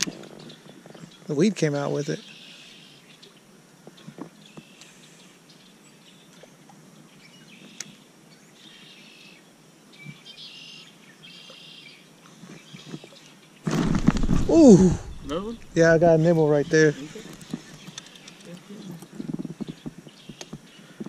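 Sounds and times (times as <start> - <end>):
birds singing trilled phrases: 10.0 - 12.0.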